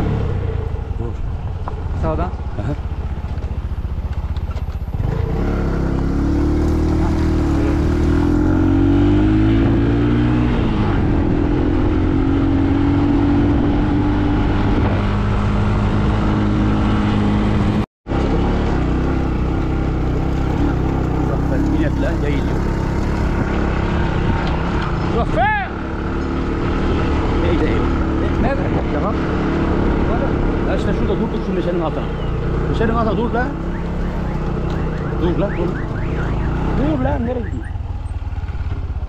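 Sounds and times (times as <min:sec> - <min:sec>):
vehicle engine driving on bumpy track: 0:00.0 - 0:39.0.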